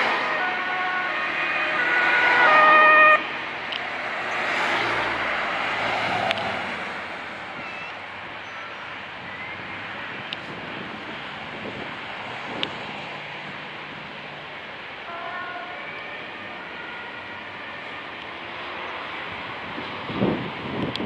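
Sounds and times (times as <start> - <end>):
two-tone ambulance siren: 0.0 - 6.0, 15.1 - 19.0.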